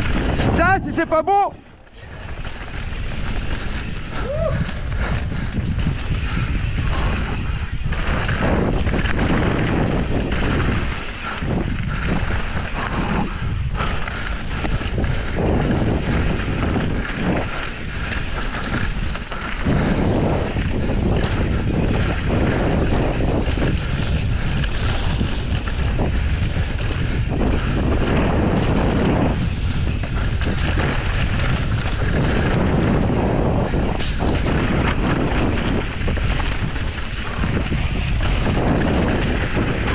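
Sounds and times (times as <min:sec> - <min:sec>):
bike tyres and frame rattling: 0:00.0 - 0:39.9
wind buffeting microphone: 0:00.0 - 0:39.9.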